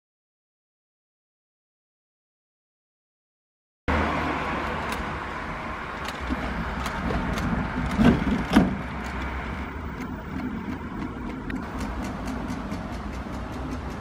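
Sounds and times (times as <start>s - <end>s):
trolley wheels rolling over brick paving: 5.9s - 14.0s
loud knocks of trolley bumping: 6.2s - 9.1s.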